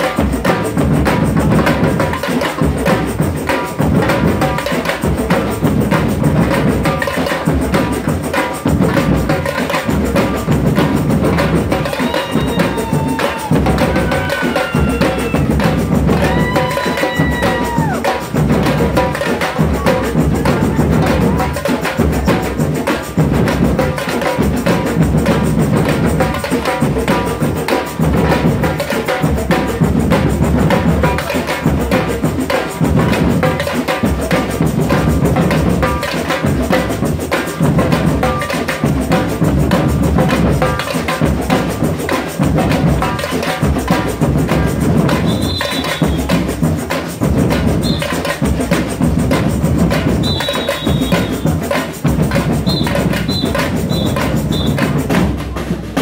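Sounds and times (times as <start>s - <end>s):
samba percussion group playing: 0.0s - 56.0s
surdo bass drums: 0.0s - 56.0s.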